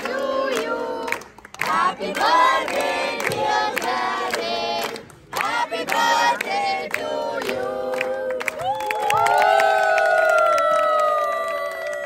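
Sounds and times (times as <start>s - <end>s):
crowd singing together: 0.0s - 8.6s
hand-clapping: 0.0s - 12.0s.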